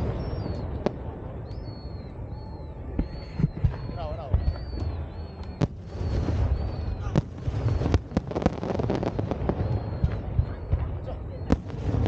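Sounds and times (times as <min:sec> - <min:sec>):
firework bangs: 0:00.0 - 0:02.1, 0:02.9 - 0:12.0
fireworks crackling pops: 0:03.0 - 0:12.0.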